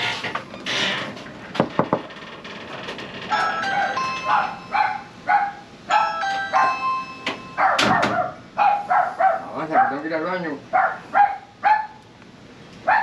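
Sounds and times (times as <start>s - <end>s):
doorbell electronic chime: 3.3s - 5.1s, 5.9s - 7.8s
dog barking: 3.8s - 6.8s, 7.6s - 10.1s, 10.7s - 12.0s.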